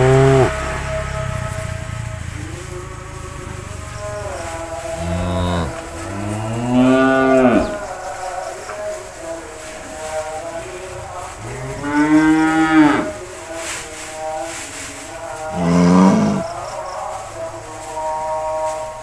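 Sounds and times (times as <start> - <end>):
cattle mooing: 0.0 - 1.6, 3.2 - 8.0, 11.3 - 13.3, 15.4 - 16.6.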